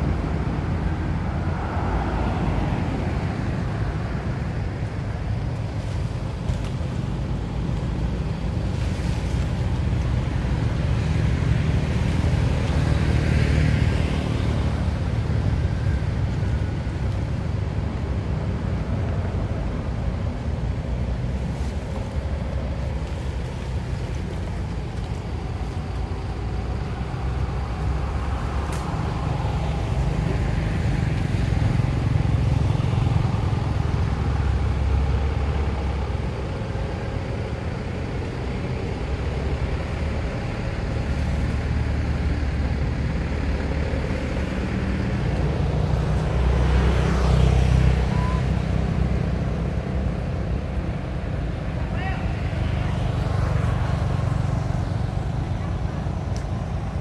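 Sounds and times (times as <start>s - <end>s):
road traffic rumble: 0.0s - 57.0s
vehicles passing: 0.0s - 57.0s.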